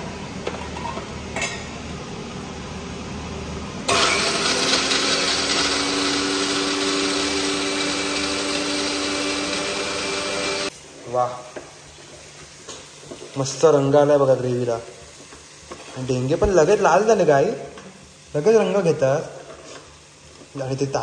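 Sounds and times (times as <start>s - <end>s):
mixer grinder motor whine: 3.9s - 10.7s.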